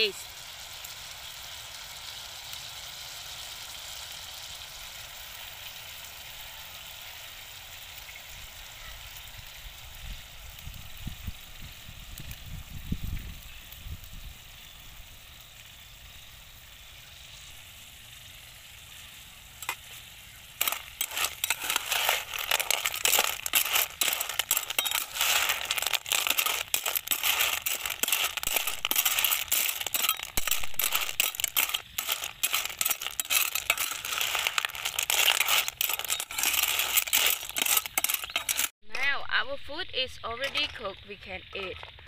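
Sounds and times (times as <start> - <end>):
faint pan sizzle: 0.0 - 42.0
shells clattering in a pan: 19.6 - 39.1, 40.3 - 42.0.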